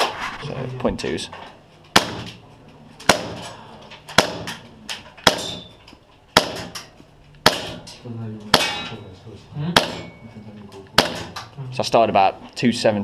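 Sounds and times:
airsoft pistol shots: 0:01.9 - 0:02.4, 0:03.0 - 0:03.4, 0:04.1 - 0:04.6, 0:05.2 - 0:05.7, 0:06.4 - 0:06.8, 0:07.4 - 0:07.8, 0:11.0 - 0:11.4.

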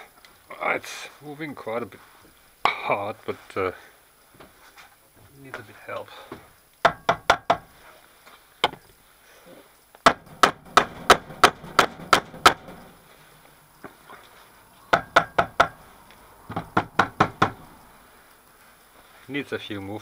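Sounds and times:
mallet knocking on steel: 0:10.1 - 0:13.0, 0:14.9 - 0:15.8.

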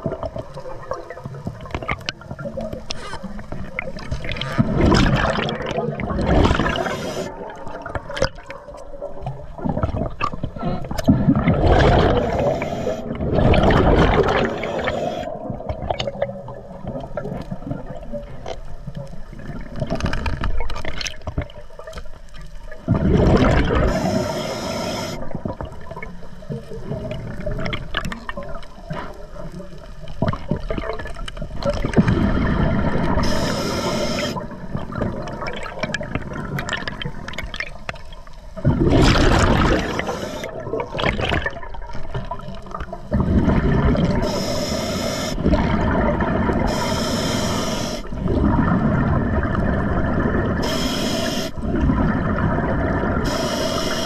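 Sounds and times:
gurgling exhaled bubbles: 0:00.0 - 0:22.0, 0:22.6 - 0:54.0
regulator hissing: 0:33.2 - 0:34.4, 0:39.9 - 0:40.5, 0:44.2 - 0:45.4, 0:46.7 - 0:48.1, 0:50.6 - 0:51.6, 0:53.2 - 0:54.0.

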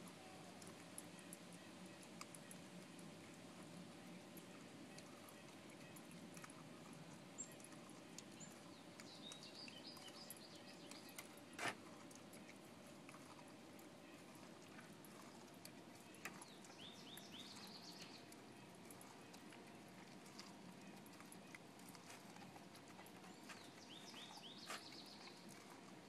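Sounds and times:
bird chirps: 0:08.4 - 0:11.3, 0:16.2 - 0:18.3, 0:23.3 - 0:25.4
dog gnawing corn cob: 0:10.0 - 0:26.0.

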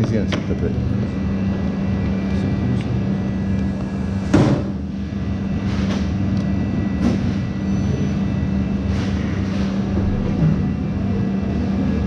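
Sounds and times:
kitchen machine hum: 0:00.0 - 0:12.0.

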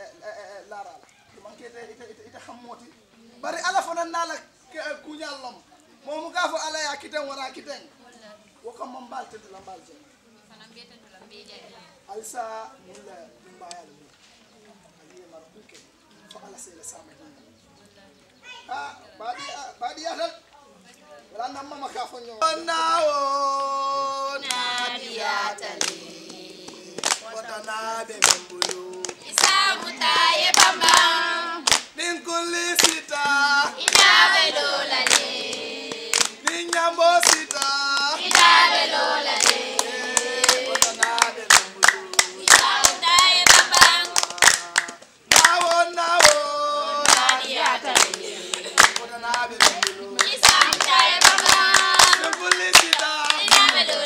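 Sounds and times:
group of people singing: 0:22.5 - 0:54.0
hand clapping: 0:25.8 - 0:32.0, 0:32.8 - 0:34.2, 0:35.0 - 0:35.3, 0:36.1 - 0:38.6, 0:39.3 - 0:54.0.

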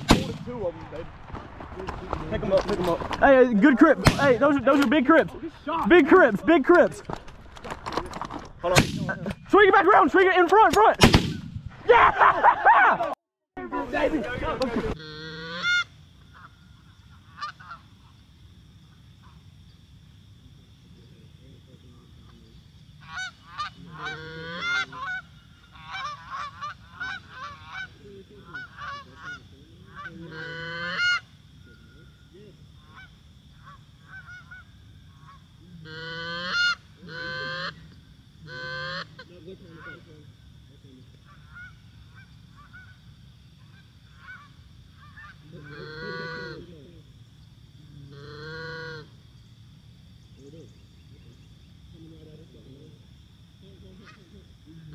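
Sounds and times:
high insect trill: 0:00.0 - 0:10.9, 0:13.6 - 0:54.9
goose honking and clucking: 0:14.9 - 0:18.2, 0:23.0 - 0:31.4, 0:32.7 - 0:40.1, 0:41.2 - 0:43.0, 0:43.6 - 0:46.8, 0:48.1 - 0:49.2.

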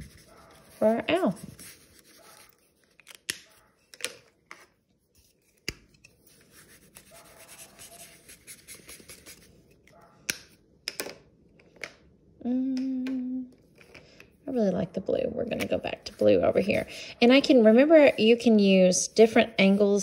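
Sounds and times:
marker scratching on paper: 0:06.3 - 0:09.5
person humming: 0:12.4 - 0:13.6.

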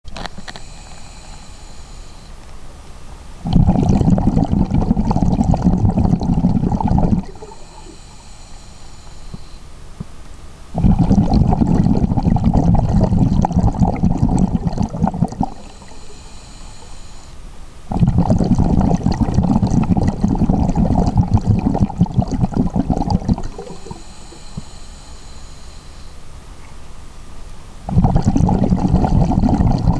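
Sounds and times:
faint high whine: 0:00.1 - 0:29.9
exhaled bubbles underwater: 0:03.4 - 0:08.0, 0:10.7 - 0:16.2, 0:17.9 - 0:24.6, 0:27.9 - 0:29.9
diver breathing through regulator: 0:03.5 - 0:09.6, 0:10.8 - 0:26.1.

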